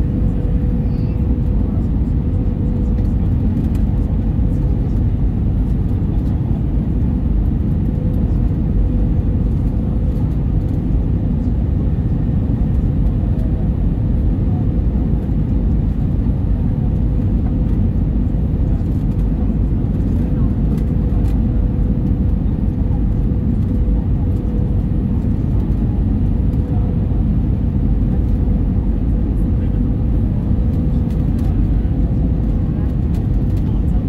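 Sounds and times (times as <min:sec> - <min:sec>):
steady hum: 0:00.0 - 0:09.2
aircraft engine rumble: 0:00.0 - 0:34.0.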